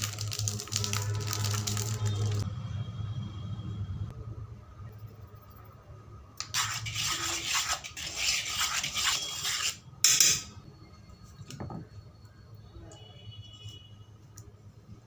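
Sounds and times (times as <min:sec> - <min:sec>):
spoon scraping in steel bowl: 0:06.4 - 0:10.5.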